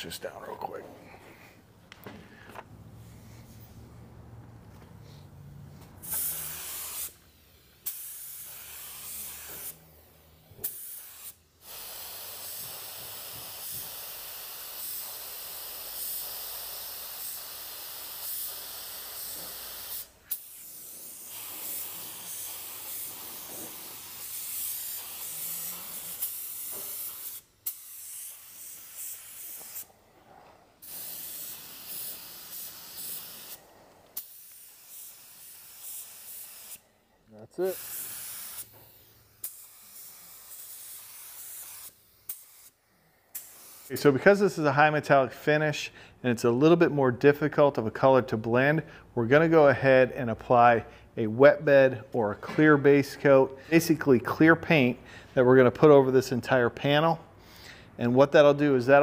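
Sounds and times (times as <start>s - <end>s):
spray gun hissing: 6.0s - 36.8s, 37.6s - 44.0s.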